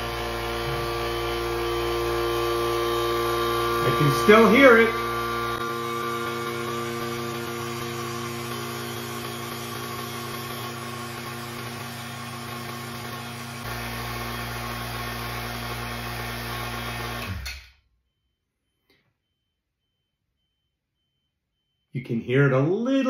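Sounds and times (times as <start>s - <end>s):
vacuum pump humming: 0.0s - 17.5s
faint pulsing high beep: 18.0s - 22.7s.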